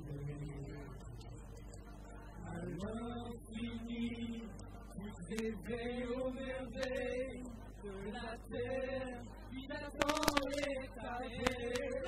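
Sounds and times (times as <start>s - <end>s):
people singing karaoke: 0.0s - 12.0s
sharp clicks: 10.0s - 10.7s, 11.4s - 12.0s.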